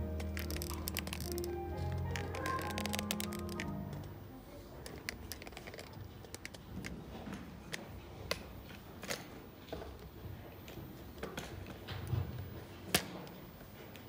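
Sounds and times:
low room rumble: 0:00.0 - 0:08.9.

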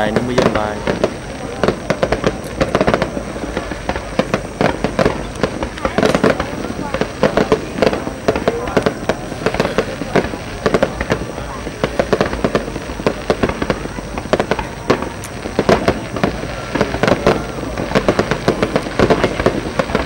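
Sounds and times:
fireworks bangs and crackling: 0:00.0 - 0:20.0.

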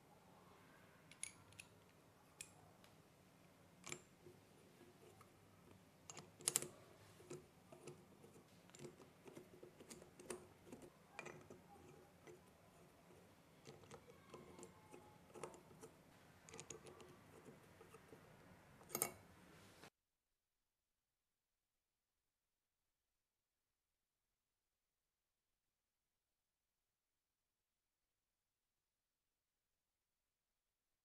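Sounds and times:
small metallic clicks: 0:01.1 - 0:02.6, 0:03.8 - 0:04.1, 0:05.0 - 0:08.0, 0:16.5 - 0:18.2, 0:18.8 - 0:19.2.

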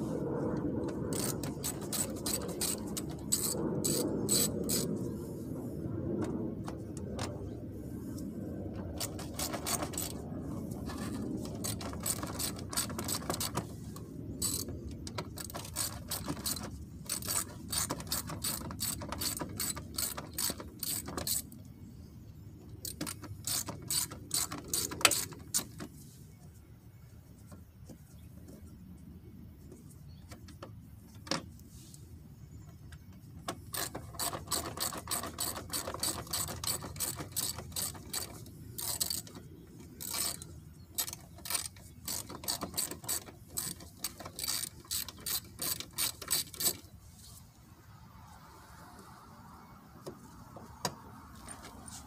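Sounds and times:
hand ratchet clicking: 0:01.1 - 0:04.9, 0:09.0 - 0:10.2, 0:10.9 - 0:13.7, 0:14.4 - 0:21.5, 0:22.8 - 0:25.8, 0:33.5 - 0:46.8.

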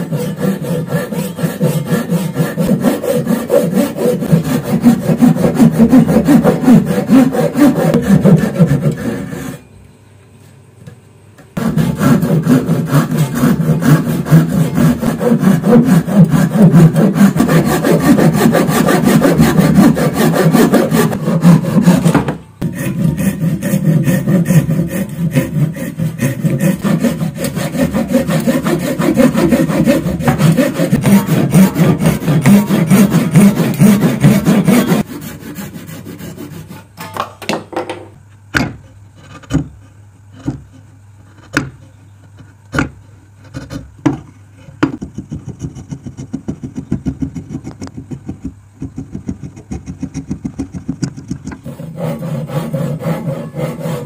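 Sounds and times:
hand saw cutting wood: 0:00.0 - 0:09.6, 0:11.6 - 0:37.1, 0:44.9 - 0:54.0
chisel scraping wood: 0:11.6 - 0:36.8, 0:38.8 - 0:43.9
chisel knocks: 0:37.0 - 0:39.7, 0:41.4 - 0:41.8, 0:42.7 - 0:43.0.

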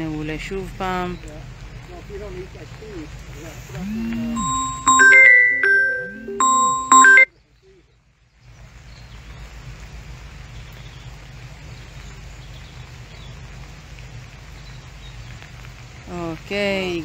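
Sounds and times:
outdoor hiss: 0:00.0 - 0:04.4
glockenspiel jingle: 0:04.4 - 0:07.3.

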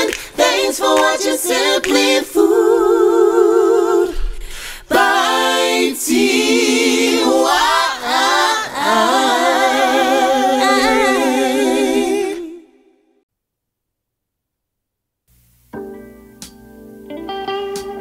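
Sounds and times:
voices singing a cappella: 0:00.0 - 0:13.0.

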